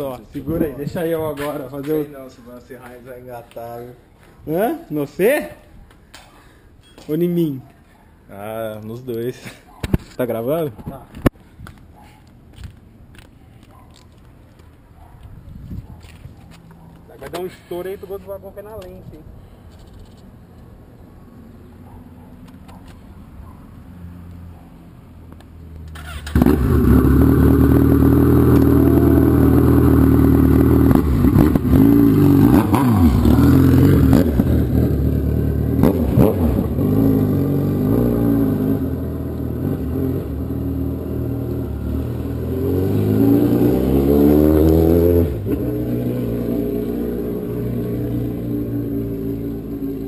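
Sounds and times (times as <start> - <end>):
motorcycle riding off: 25.8 - 50.0
loud motorcycle engine revving: 26.0 - 50.0.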